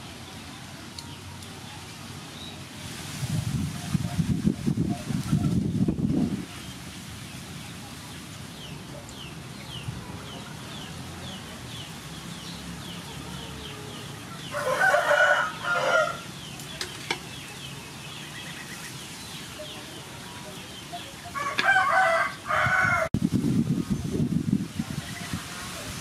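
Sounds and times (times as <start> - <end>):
rooster crowing: 13.3 - 16.3, 21.3 - 23.1.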